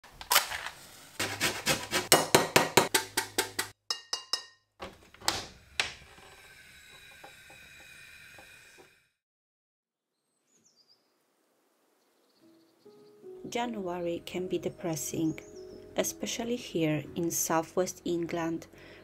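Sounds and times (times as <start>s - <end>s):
metal spoon clinking ceramic bowl: 3.9s - 4.6s.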